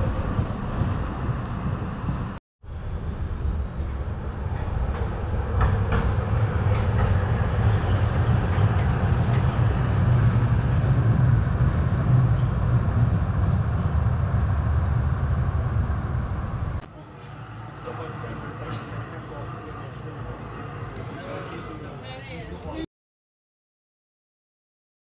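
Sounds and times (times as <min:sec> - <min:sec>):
tram rumbling on track: 0:00.0 - 0:22.9
tram wheels clacking: 0:04.4 - 0:22.4.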